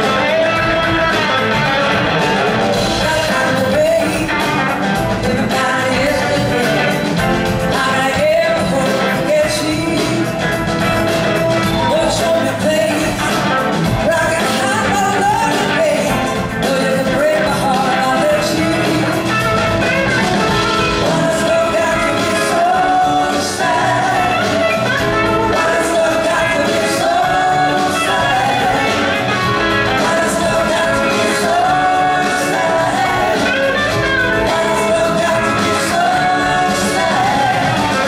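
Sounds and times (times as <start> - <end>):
lead guitar bending notes: 0.0 - 3.2, 18.3 - 38.0
blues-rock band playing live: 0.0 - 38.0.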